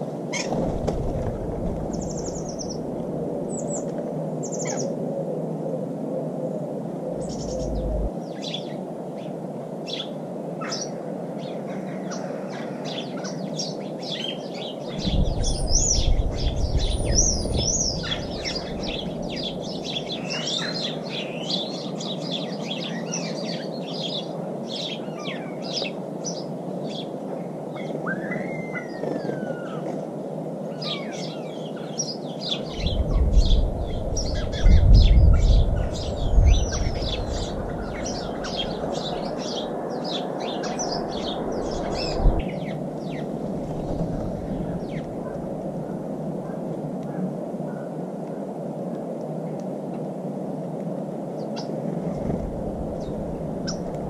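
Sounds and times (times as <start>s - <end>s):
low rumble: 7.1s - 8.1s, 15.0s - 19.8s
small birds chirping: 7.2s - 8.8s, 12.9s - 27.2s, 30.8s - 45.2s.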